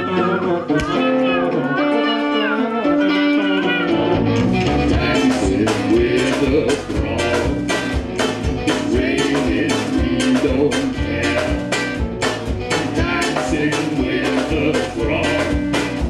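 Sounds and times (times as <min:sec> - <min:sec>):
woman singing: 0:00.0 - 0:03.0
acoustic guitar: 0:00.0 - 0:16.0
drums: 0:00.0 - 0:16.0
strummed ukulele: 0:00.0 - 0:16.0.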